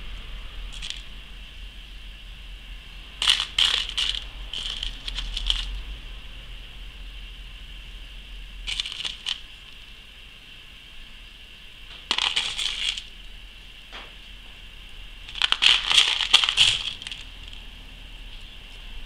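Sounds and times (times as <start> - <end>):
beads clattering in plastic box: 0.7 - 1.1, 3.2 - 5.8, 8.7 - 9.4, 12.0 - 13.1, 15.3 - 17.6.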